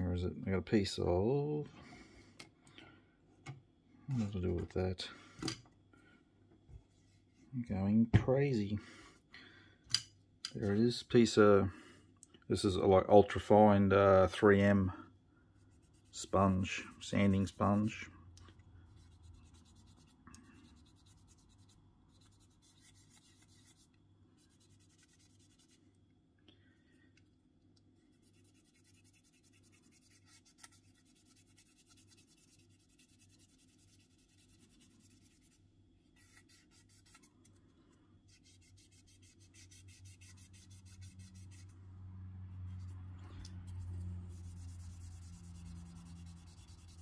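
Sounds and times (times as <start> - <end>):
sanding sponge rubbing plastic: 19.0 - 25.8, 28.1 - 35.6, 36.2 - 37.3, 38.3 - 41.8, 43.6 - 47.0.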